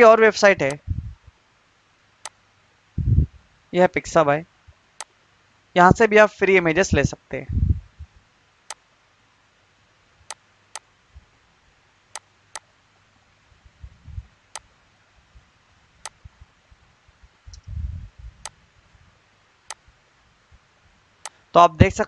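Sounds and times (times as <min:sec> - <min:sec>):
dull low thumps: 0:00.6 - 0:01.3, 0:03.0 - 0:03.4, 0:06.9 - 0:08.2, 0:13.6 - 0:14.3, 0:17.5 - 0:18.6
computer mouse clicks: 0:21.2 - 0:21.4.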